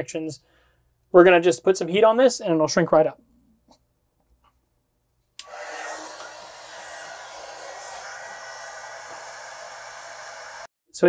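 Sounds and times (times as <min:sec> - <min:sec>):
heat gun switch click: 0:05.4 - 0:06.4
heat gun blowing hot air: 0:05.4 - 0:10.7.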